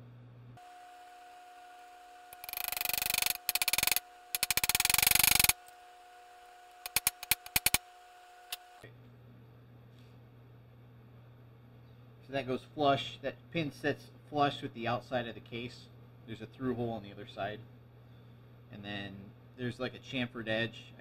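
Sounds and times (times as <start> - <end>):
hammer tapping metal punch: 6.9 - 7.8.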